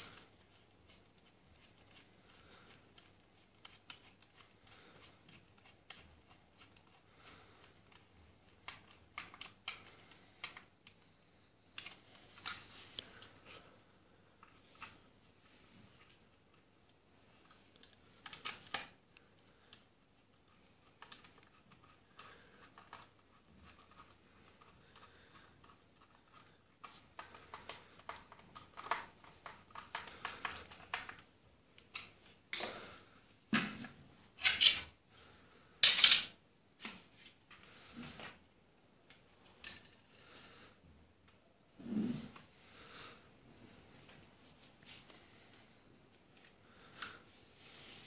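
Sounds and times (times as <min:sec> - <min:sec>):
wooden parts clicking and tapping: 0:00.1 - 0:11.0, 0:17.5 - 0:35.0, 0:35.8 - 0:37.6.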